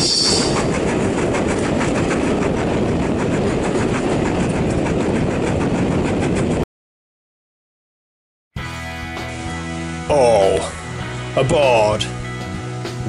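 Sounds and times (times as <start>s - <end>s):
steam train rumbling: 0.0s - 6.6s, 9.2s - 13.0s.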